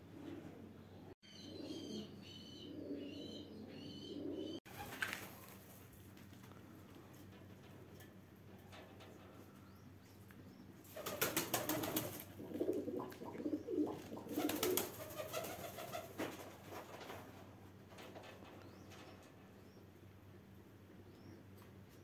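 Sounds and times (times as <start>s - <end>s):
pigeon cooing: 0.0s - 4.9s, 11.0s - 16.1s
wings fluttering: 4.7s - 7.3s, 10.8s - 19.3s.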